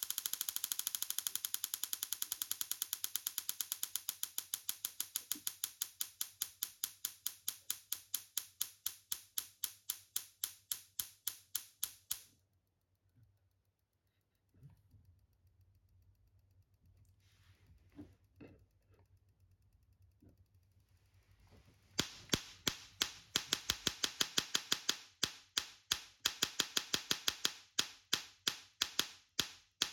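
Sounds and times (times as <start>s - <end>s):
tesla coil sparks clicking: 0.0s - 12.3s, 22.0s - 29.9s.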